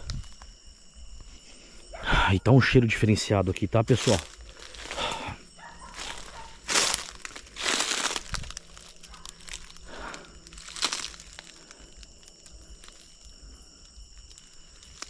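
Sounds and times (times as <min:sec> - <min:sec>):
footsteps crunching dry leaves: 0:03.9 - 0:13.2.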